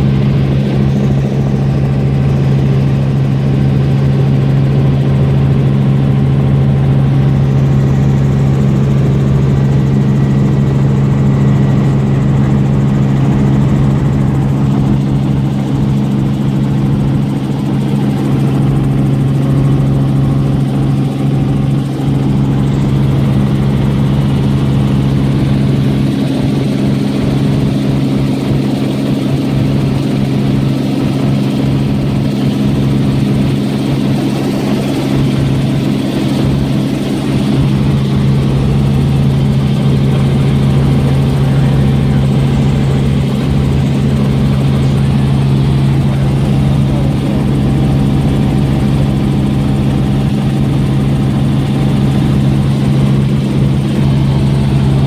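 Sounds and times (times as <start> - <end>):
helicopter engine and rotor drone: 0.0 - 55.0.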